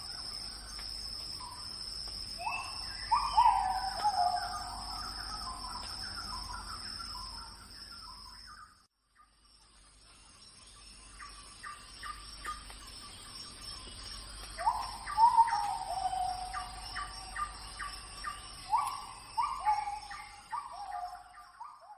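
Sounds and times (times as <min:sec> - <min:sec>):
high insect-like hiss: 0:00.0 - 0:08.7, 0:09.5 - 0:21.6
birds calling: 0:02.4 - 0:08.6, 0:11.0 - 0:21.9.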